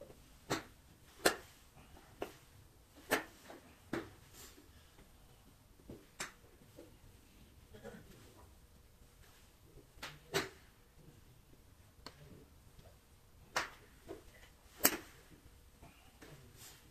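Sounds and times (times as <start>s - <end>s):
golf clubs striking balls: 0.0s - 4.3s, 9.9s - 10.7s, 12.8s - 15.5s.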